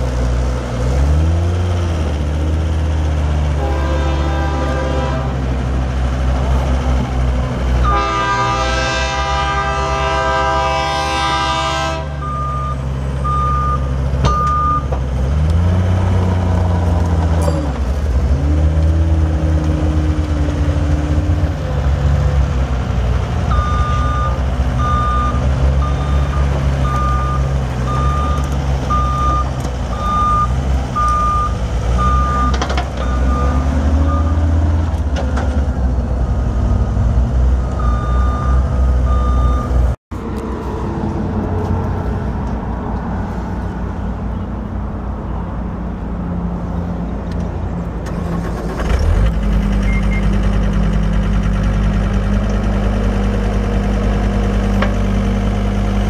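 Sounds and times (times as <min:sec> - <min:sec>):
diesel engine revving: 0:00.0 - 0:56.0
long horn blast: 0:03.5 - 0:05.6, 0:07.8 - 0:12.4
backup alarm beeping: 0:23.5 - 0:34.4, 0:37.6 - 0:39.8.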